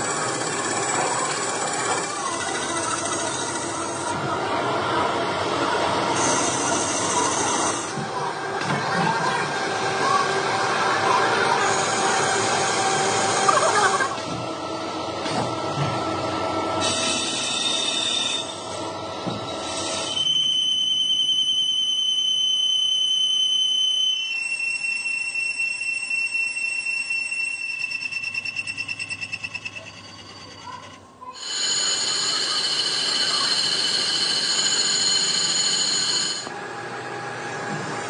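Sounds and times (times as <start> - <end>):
lathe tool squealing on metal: 16.8 - 18.7, 23.6 - 34.1.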